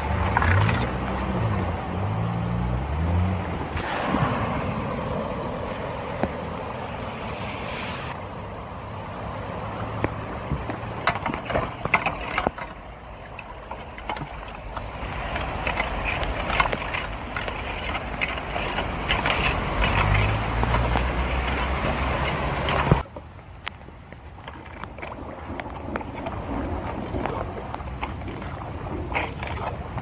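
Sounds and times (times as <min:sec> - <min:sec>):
low hum: 0:00.0 - 0:23.0
floodwater rushing down a drain: 0:00.0 - 0:30.0
rake scraping on metal grate: 0:13.4 - 0:23.0.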